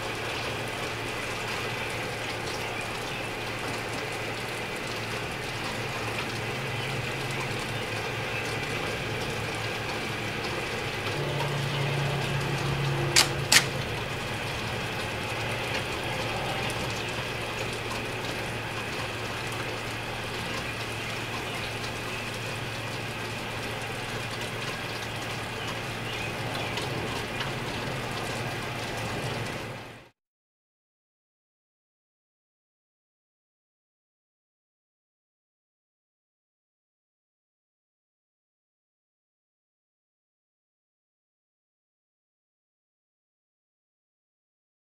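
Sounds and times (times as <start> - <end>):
constant low hum: 0.0 - 30.1
sharp clicks: 13.2 - 13.8.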